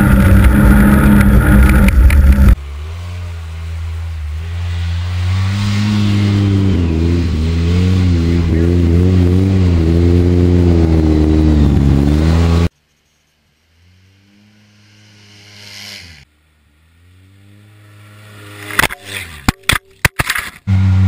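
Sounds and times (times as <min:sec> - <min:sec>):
engine revving loudly: 0:00.0 - 0:12.7, 0:13.7 - 0:19.3.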